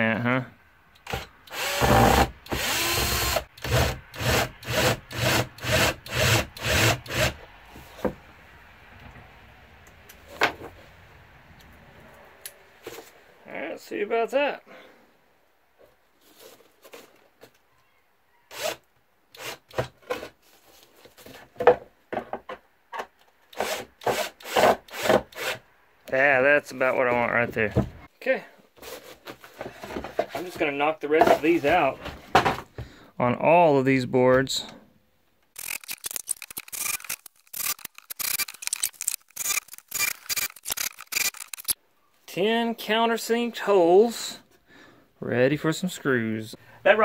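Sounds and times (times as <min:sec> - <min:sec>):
cordless drill bit rasping wood: 0:01.1 - 0:07.4, 0:35.6 - 0:41.8.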